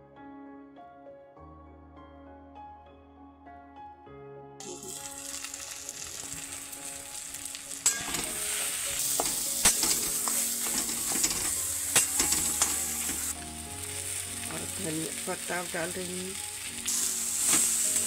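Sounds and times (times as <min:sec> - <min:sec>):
potato sizzling in hot oil: 0:04.6 - 0:18.0
metal spatula scraping and clacking: 0:07.8 - 0:13.3.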